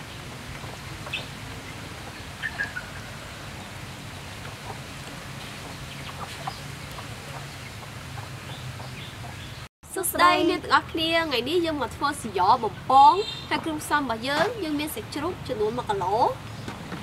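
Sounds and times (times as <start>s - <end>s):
steady low hum and hiss: 0.0s - 17.0s
chickens clucking: 4.2s - 9.6s.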